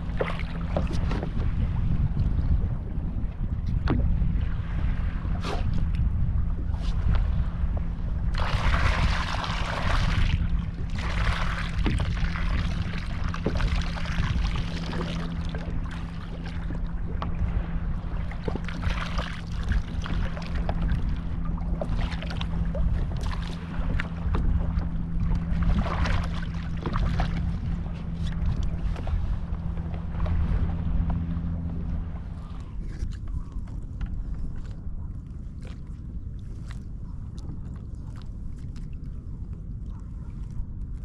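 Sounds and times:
water lapping against kayak hull: 0.0 - 41.0
wind buffeting microphone: 0.0 - 41.0
small knocks on hull: 11.7 - 14.0.

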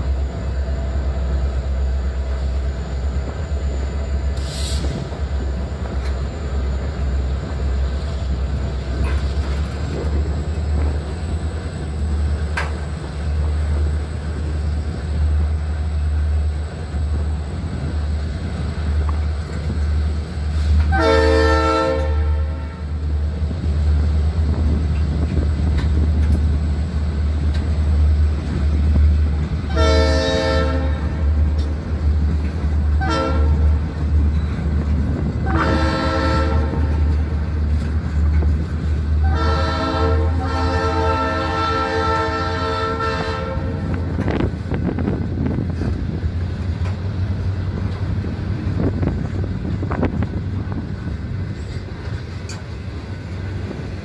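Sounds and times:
locomotive air horn blasts: 20.6 - 23.0, 29.7 - 31.2, 33.0 - 33.8, 35.4 - 37.1, 39.2 - 44.0.

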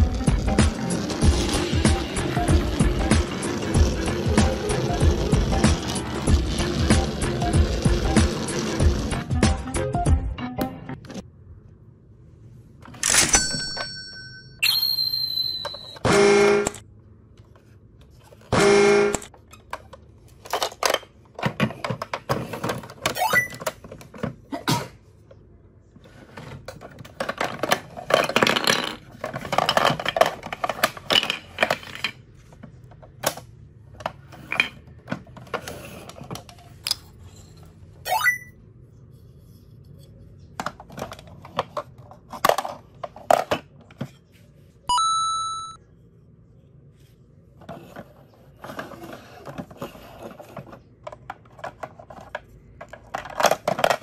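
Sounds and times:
plastic toy knocks and rattles: 19.4 - 24.4, 26.4 - 33.4, 40.5 - 44.1, 48.7 - 54.0.

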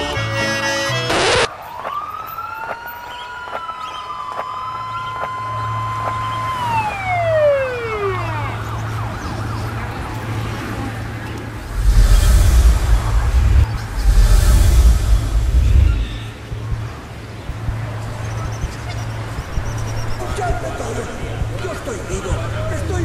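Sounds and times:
music: 0.0 - 1.5, 11.7 - 23.0
wailing siren-like tone: 1.5 - 10.1
steady low hum: 11.6 - 16.5.

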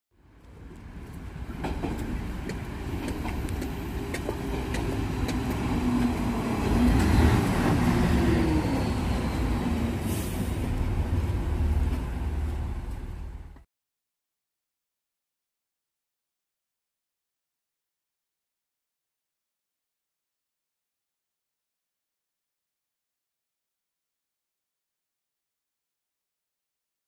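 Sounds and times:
diesel train rumble: 0.2 - 13.6
train wheels clicking: 0.4 - 13.6.

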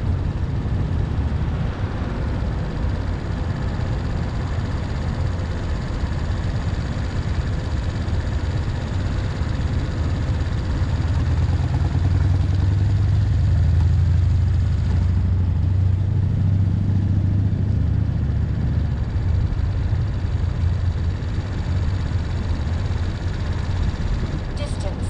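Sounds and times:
street noise: 17.0 - 25.0.

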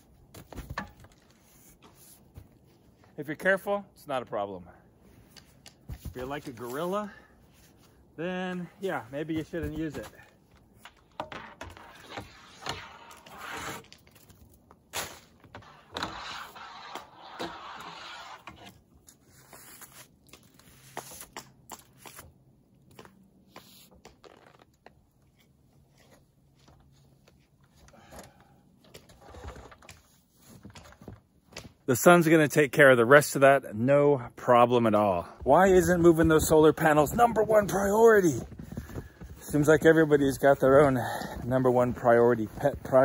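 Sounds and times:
rake scraping snow off panels: 11.7 - 14.2, 14.9 - 21.4.

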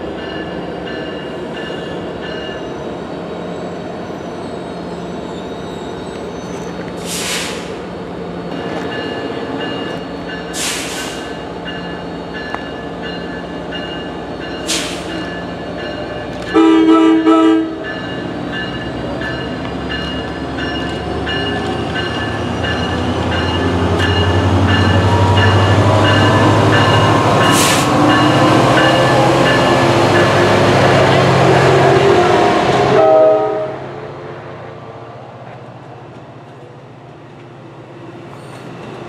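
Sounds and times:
diesel locomotive engine rumble: 0.0 - 39.0
train horn blasts: 16.5 - 17.9, 31.4 - 33.9.

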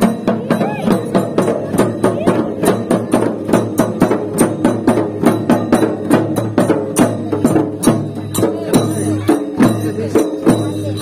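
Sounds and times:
barrel drums struck with sticks: 0.0 - 11.0.

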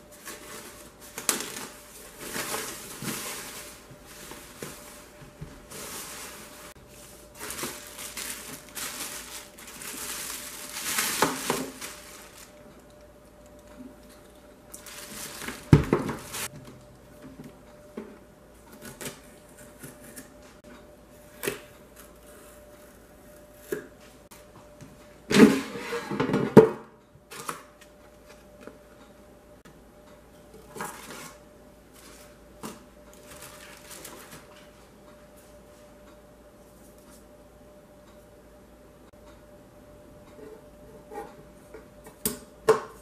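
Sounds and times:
cardboard and paper rustling: 0.1 - 12.6, 14.8 - 16.5, 32.0 - 34.8
air fryer drawer sliding scrape: 25.4 - 26.4.

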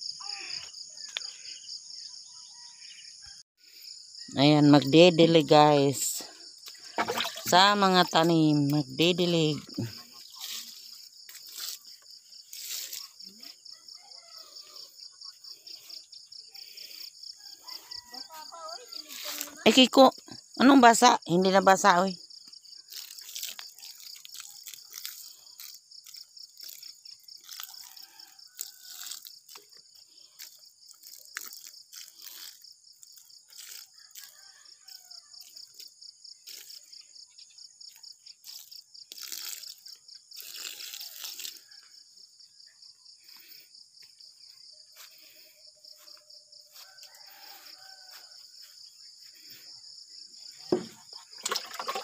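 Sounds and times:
insects chirring: 0.0 - 52.0
water splashing onto soil: 50.8 - 52.0.

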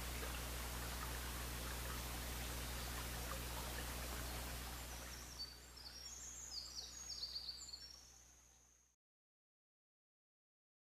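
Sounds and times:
small bird singing: 4.2 - 8.8.

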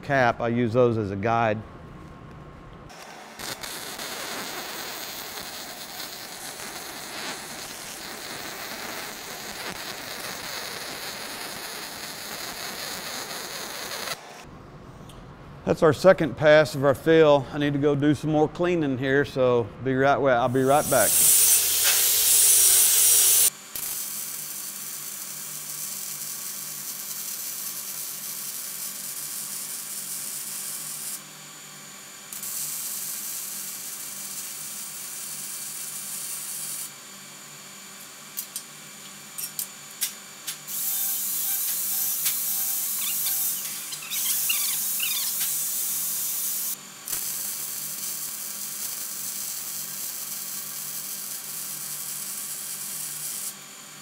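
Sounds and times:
angle grinder: 2.9 - 14.4, 20.6 - 31.2, 39.4 - 53.6
welding arc hissing: 2.9 - 14.5, 20.5 - 31.2, 32.3 - 37.0, 37.9 - 53.6.

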